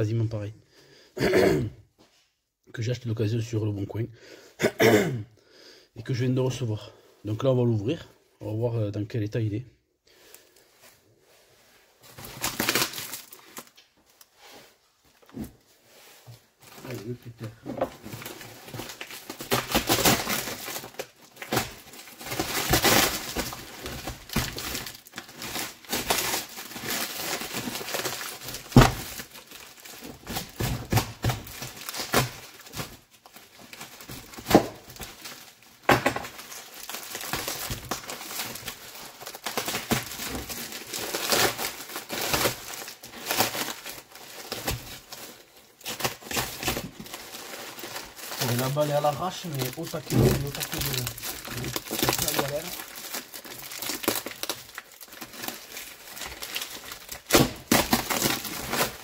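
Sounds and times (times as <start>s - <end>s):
tape and plastic ripping: 12.2s - 14.3s, 18.0s - 45.2s, 45.8s - 59.0s.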